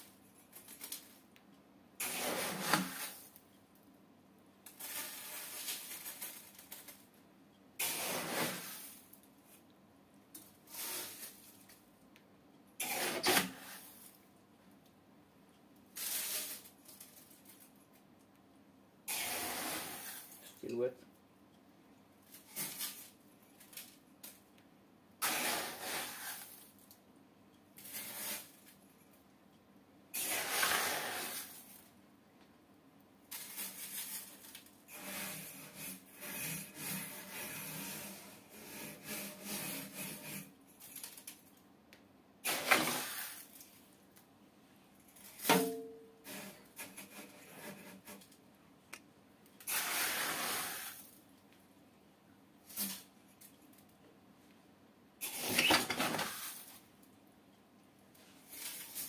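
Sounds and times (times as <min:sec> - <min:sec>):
scooping gravel from plastic tub: 0:02.0 - 0:03.3, 0:07.8 - 0:09.1.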